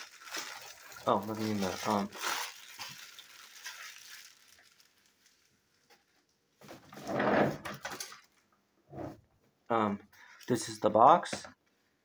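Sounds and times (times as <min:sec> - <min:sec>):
paper packaging rustling: 0:00.0 - 0:06.2.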